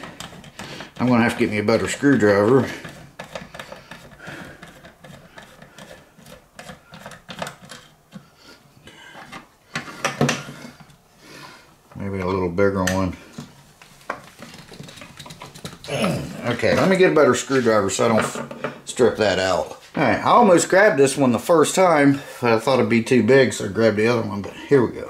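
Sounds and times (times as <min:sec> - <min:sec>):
screwdriver clicking and scraping: 0:00.0 - 0:01.1, 0:02.1 - 0:08.2
person muttering: 0:15.8 - 0:16.6.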